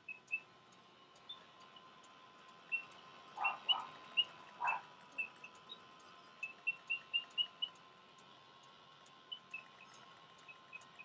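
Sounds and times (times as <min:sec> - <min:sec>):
mechanical bird chirping: 0:00.0 - 0:00.5, 0:01.2 - 0:02.0, 0:02.6 - 0:07.9, 0:09.1 - 0:11.0.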